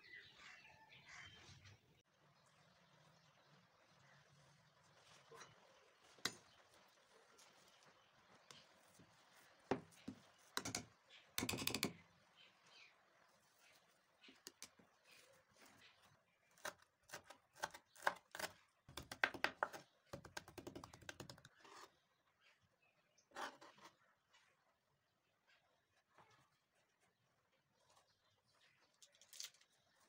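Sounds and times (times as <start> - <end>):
knife chopping on wooden board: 16.6 - 21.4.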